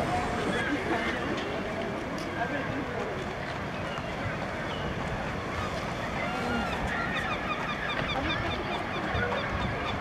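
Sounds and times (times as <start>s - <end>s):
crowd chatter: 0.0s - 10.0s
gulls calling: 3.7s - 10.0s.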